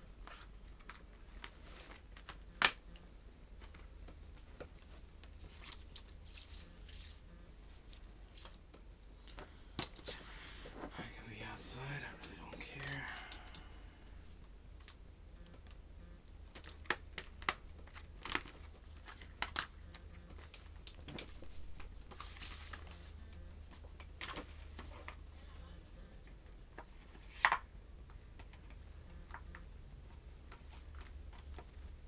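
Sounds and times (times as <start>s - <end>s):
plastic rustling: 3.6s - 8.6s
plastic cases clicking and snapping: 16.5s - 21.9s.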